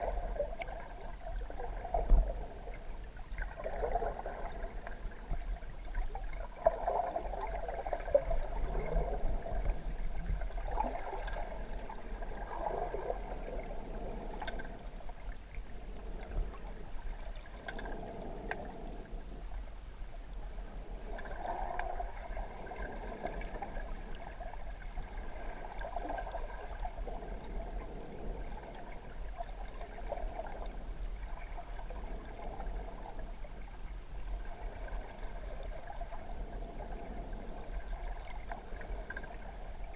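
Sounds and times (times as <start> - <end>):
faint ticks: 0.0 - 0.9, 13.4 - 19.7, 21.0 - 22.0, 36.8 - 39.6
muffled underwater water wash: 0.0 - 39.9
steady low hum: 0.0 - 39.9.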